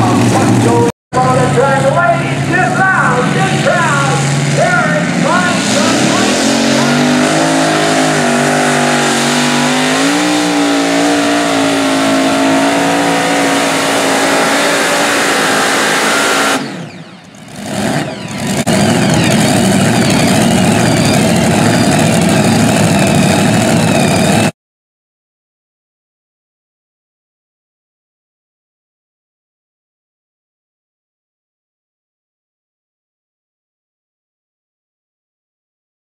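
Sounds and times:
pulling tractor engines roaring: 0:00.0 - 0:24.5.

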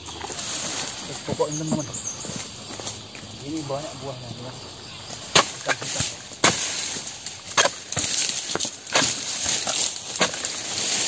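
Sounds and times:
fronds rustling: 0:00.0 - 0:11.0
chisel chopping palm fronds: 0:05.2 - 0:11.0.

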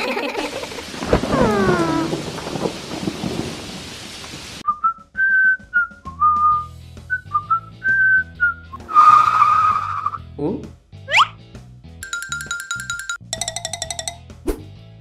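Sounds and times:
rain: 0:00.0 - 0:04.6
thunder: 0:00.8 - 0:04.6
whistled tune over bass line: 0:04.6 - 0:10.3, 0:11.1 - 0:11.4.

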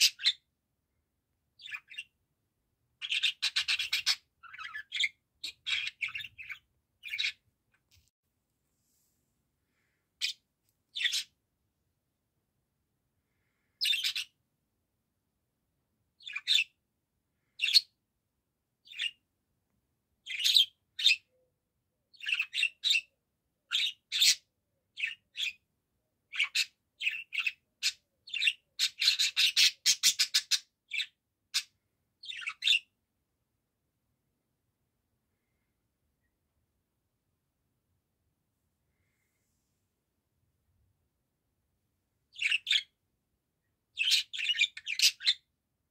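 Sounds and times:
budgerigar chirping: 0:00.0 - 0:00.4, 0:01.6 - 0:02.2, 0:03.0 - 0:07.4, 0:10.2 - 0:11.3, 0:13.8 - 0:14.4, 0:16.2 - 0:16.8, 0:20.3 - 0:21.3, 0:22.1 - 0:23.1, 0:23.7 - 0:25.6, 0:26.3 - 0:32.9, 0:42.3 - 0:42.9, 0:44.0 - 0:45.5.

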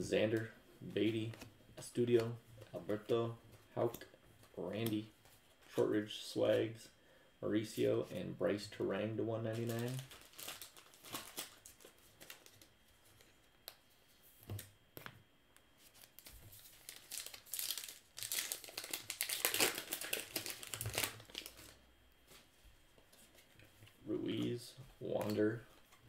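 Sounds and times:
wrapper tearing and crinkling: 0:09.5 - 0:12.7, 0:16.0 - 0:21.8.

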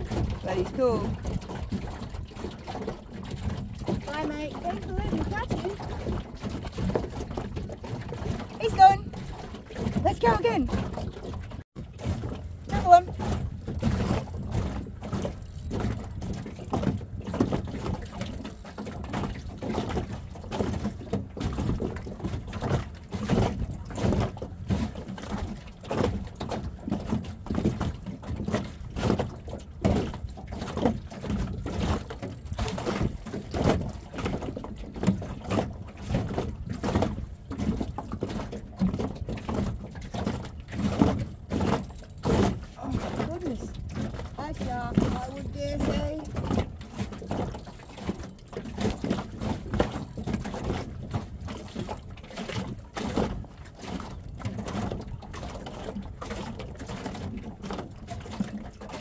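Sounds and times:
water slapping boat hull: 0:00.0 - 0:59.0
wind buffeting microphone: 0:42.4 - 0:48.0.

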